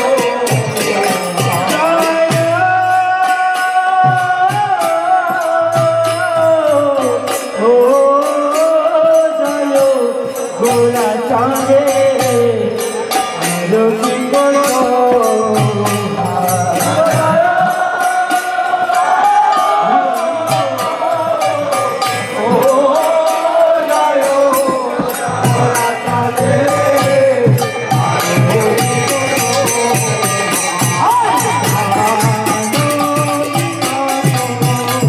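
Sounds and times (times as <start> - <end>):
hand cymbal strikes: 0.0 - 35.0
voices chanting: 16.4 - 35.0.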